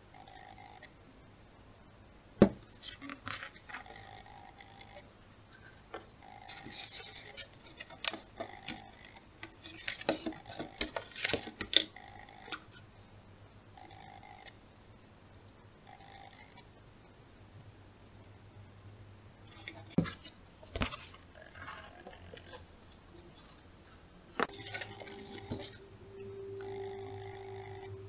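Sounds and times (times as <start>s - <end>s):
paper rustling: 6.5s - 8.8s, 9.4s - 11.8s, 24.5s - 25.8s.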